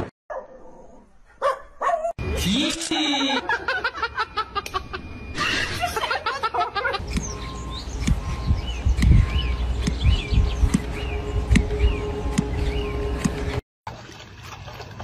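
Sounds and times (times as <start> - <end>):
person laughing hard: 2.7 - 7.0
small birds chirping: 7.0 - 13.4
wind rumbling on microphone: 7.1 - 13.6.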